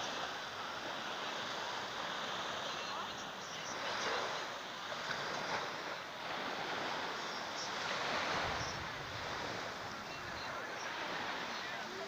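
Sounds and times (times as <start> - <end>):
waves washing on sandy shore: 0.0 - 12.0
wind buffeting microphone: 8.0 - 11.8.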